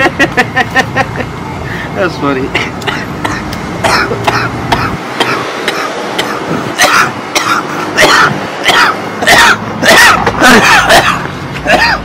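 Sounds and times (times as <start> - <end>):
man coughing: 2.5 - 12.0.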